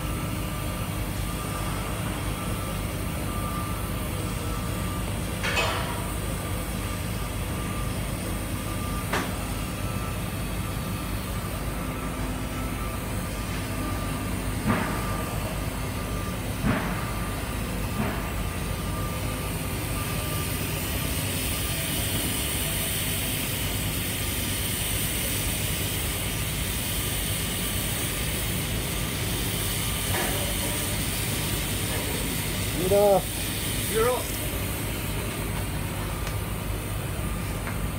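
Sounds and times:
welding arc hissing: 19.6s - 37.5s.

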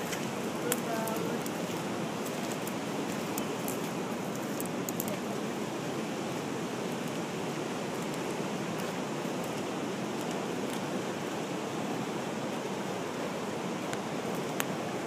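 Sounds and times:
river water pouring over a weir: 0.0s - 15.0s.

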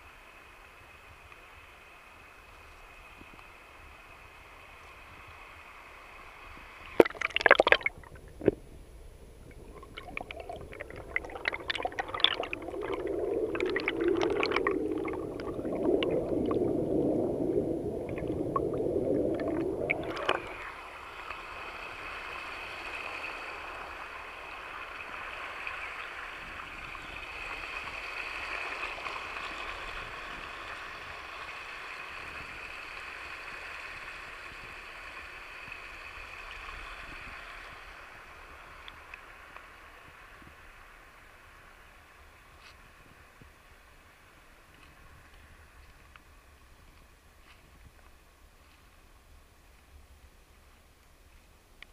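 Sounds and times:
stream water gurgling: 4.4s - 46.7s
water splashes and clicks: 6.9s - 8.6s, 9.5s - 16.6s, 18.1s - 20.7s.

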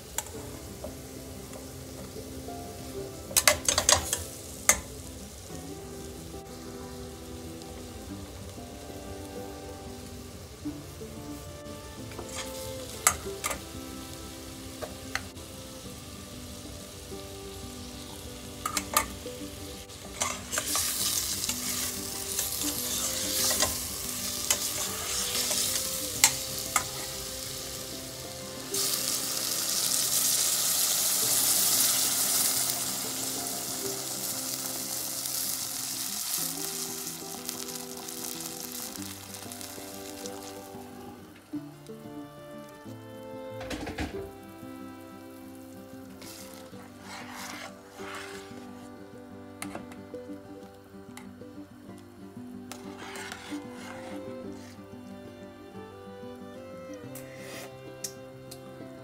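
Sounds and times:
chicken sizzling in fat: 0.0s - 59.0s
spatula scraping a metal pot: 12.0s - 13.6s, 20.0s - 27.2s, 46.2s - 48.9s, 52.7s - 54.9s, 57.1s - 58.0s.

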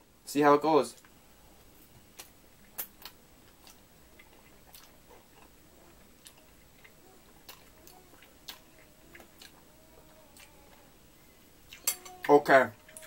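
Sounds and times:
person slurping and chewing noodles: 2.2s - 10.9s.

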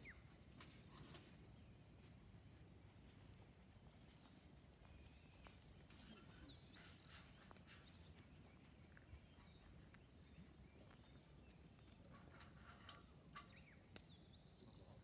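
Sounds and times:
faint birds chirping: 3.7s - 15.0s.

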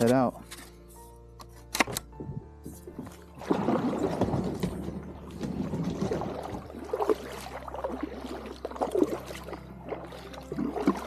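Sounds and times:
kayak paddle splashing in water: 3.0s - 11.0s.

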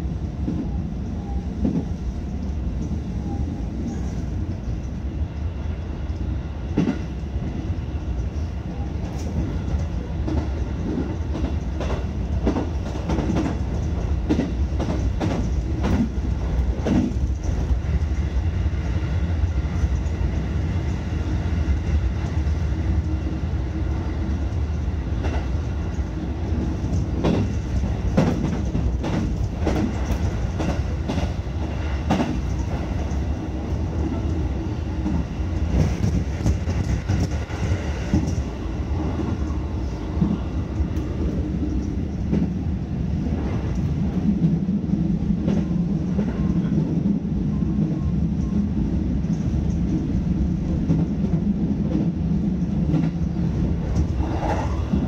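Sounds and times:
electric train rumbling: 0.0s - 55.0s.

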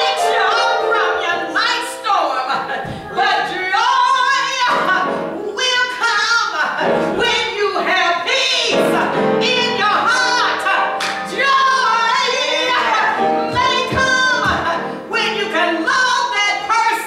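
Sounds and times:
woman singing: 0.0s - 17.0s.

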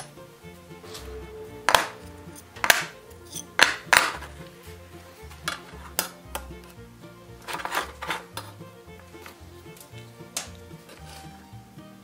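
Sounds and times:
background music: 0.0s - 12.0s
steel washers clacking on wood: 1.7s - 4.3s, 5.4s - 6.5s, 7.4s - 8.5s.

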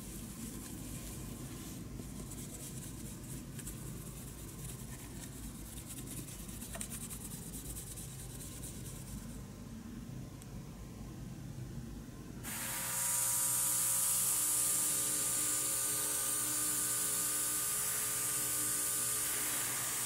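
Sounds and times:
cloth rubbing on plastic: 0.0s - 9.4s.

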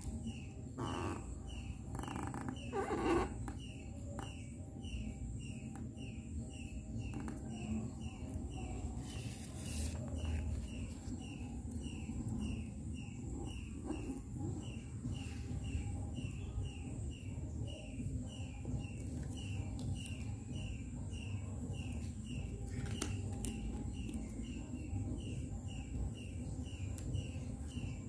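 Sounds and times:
small bird chirping: 0.0s - 28.0s
paper rustling: 8.9s - 11.2s.

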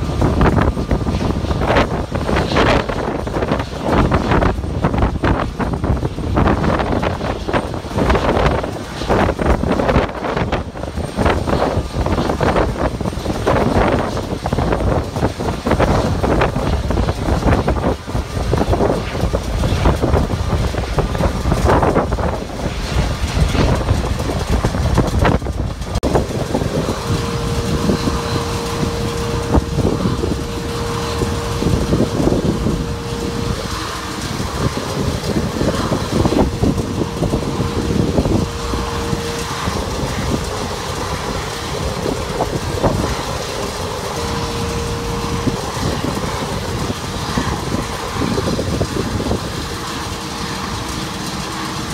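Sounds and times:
ground equipment: 0.0s - 51.9s
jet engines rumbling: 0.0s - 51.9s
steady hum: 0.0s - 51.9s
wind buffeting: 0.0s - 51.9s.

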